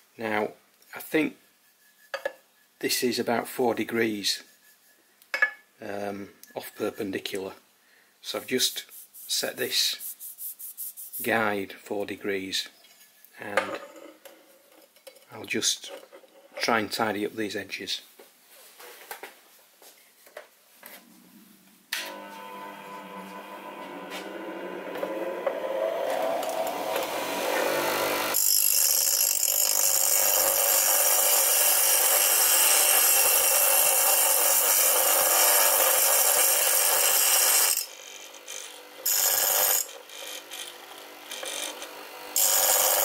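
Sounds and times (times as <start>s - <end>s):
bench grinder motor humming: 22.0s - 43.0s.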